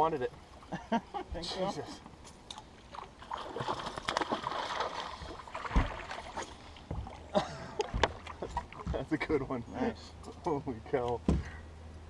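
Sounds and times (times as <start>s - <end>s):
fish splashing in water: 2.6s - 9.0s
dull thumps: 5.6s - 6.1s.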